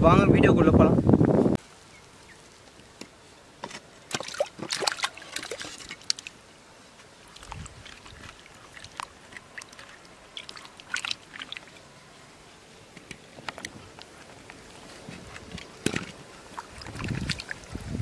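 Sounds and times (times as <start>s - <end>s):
water splashing and clattering: 3.6s - 6.3s, 7.3s - 11.7s, 15.2s - 17.7s
hands scrubbing potatoes in water: 4.1s - 6.3s, 7.2s - 11.8s.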